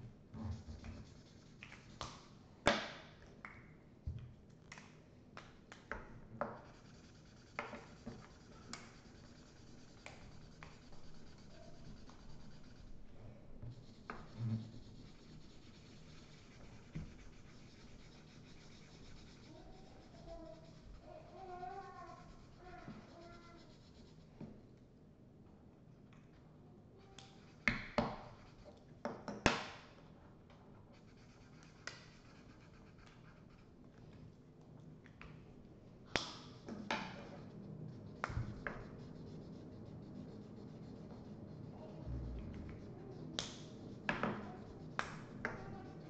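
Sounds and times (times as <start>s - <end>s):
markers scratching on paper: 0.4s - 2.4s, 6.4s - 24.4s, 27.0s - 28.9s, 30.8s - 34.5s, 35.2s - 46.0s.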